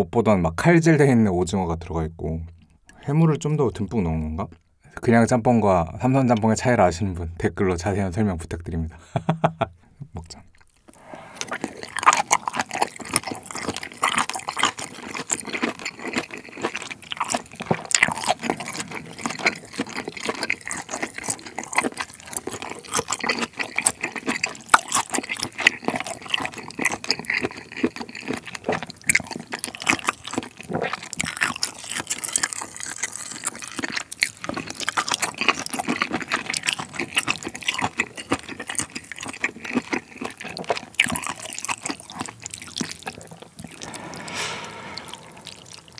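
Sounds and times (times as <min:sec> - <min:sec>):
wet chewing and lip smacks: 0:10.6 - 0:43.9
noodles slurping: 0:10.9 - 0:42.2.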